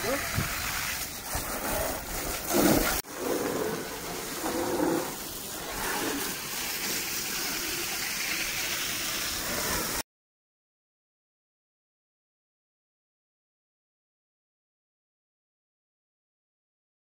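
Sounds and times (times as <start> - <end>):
hose water spraying and splashing: 0.0 - 10.0.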